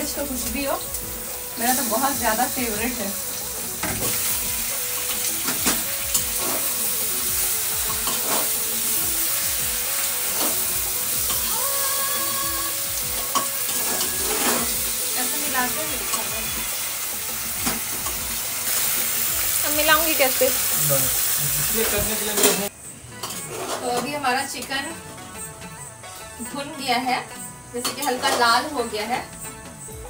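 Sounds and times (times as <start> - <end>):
chicken sizzling in hot oil: 0.0 - 22.7
spoon scraping metal pot: 13.2 - 14.8.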